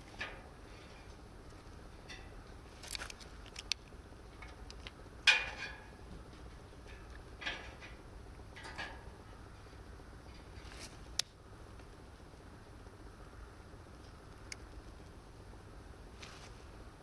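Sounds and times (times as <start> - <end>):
hands scraping and rustling: 16.2 - 16.7.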